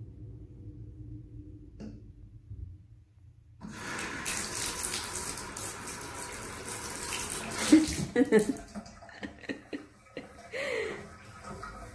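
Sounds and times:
water running into tub: 3.6 - 11.9.

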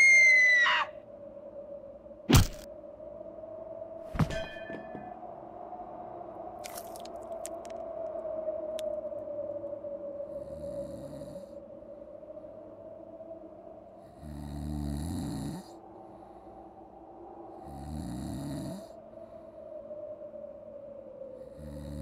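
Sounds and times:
person snoring: 14.2 - 15.8, 17.6 - 18.9.

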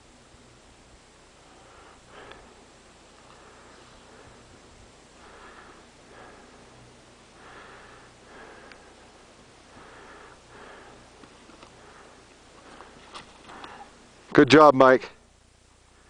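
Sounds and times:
faint steady hiss: 0.0 - 16.0
person breathing hard: 1.4 - 14.1.

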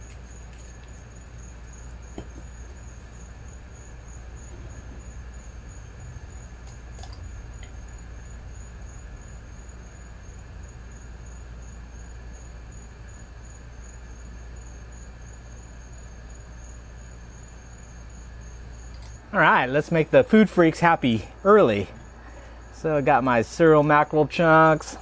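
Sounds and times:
high-pitched insect trill: 0.0 - 23.6
low steady hum: 0.0 - 25.0.

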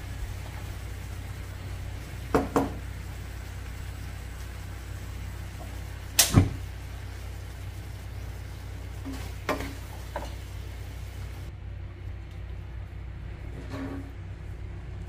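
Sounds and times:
steady low hum: 0.0 - 15.0
utensil knocking on wok: 2.3 - 2.8.

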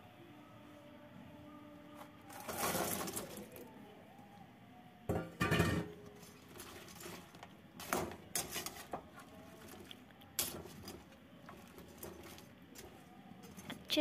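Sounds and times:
metal spoon scraping in pan: 5.4 - 14.0.

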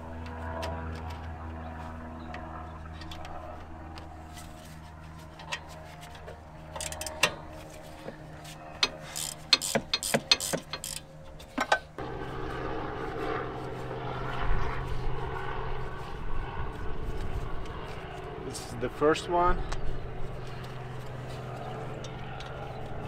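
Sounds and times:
loud steady rumble: 0.0 - 23.0
steady low hum: 0.0 - 23.0
hand tool clicking on metal: 8.8 - 11.8.

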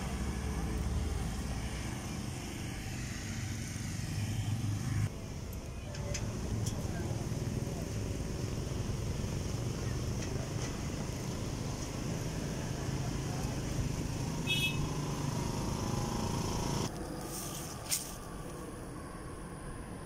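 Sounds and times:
busy market bustle: 0.0 - 18.3
road traffic: 0.0 - 20.0
short high horn toot: 14.4 - 14.9.

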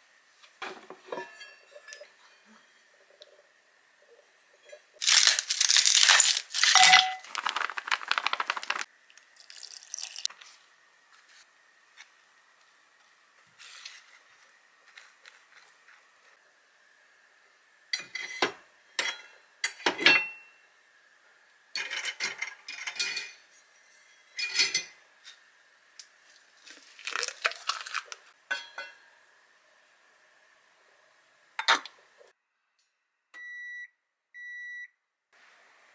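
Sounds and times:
dishes and utensils clattering: 0.6 - 2.9, 21.8 - 25.5, 28.4 - 29.1.

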